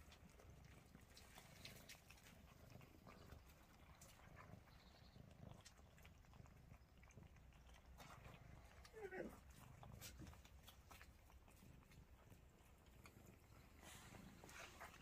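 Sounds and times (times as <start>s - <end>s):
cats eating clicks and smacks: 0.0s - 15.0s.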